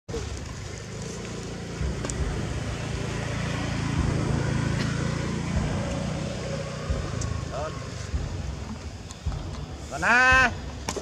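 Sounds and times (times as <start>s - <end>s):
low engine rumble: 0.1s - 11.0s.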